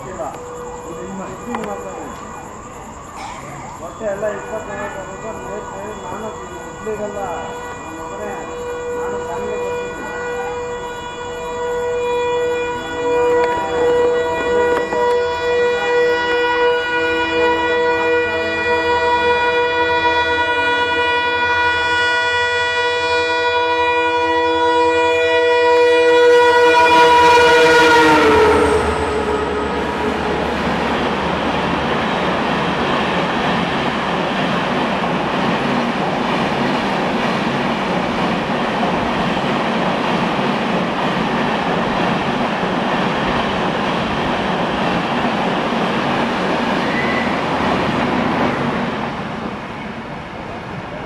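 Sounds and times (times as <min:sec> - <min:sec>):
train wheels on rails: 0:00.0 - 0:08.4, 0:12.7 - 0:19.4, 0:24.6 - 0:51.0
locomotive horn: 0:05.0 - 0:32.2.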